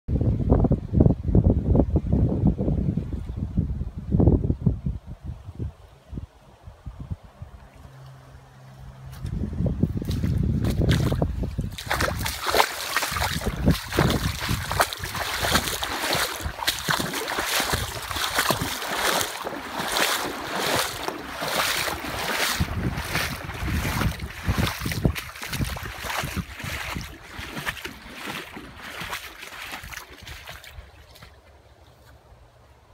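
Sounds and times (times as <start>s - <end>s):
footsteps wading through water: 9.0s - 32.2s.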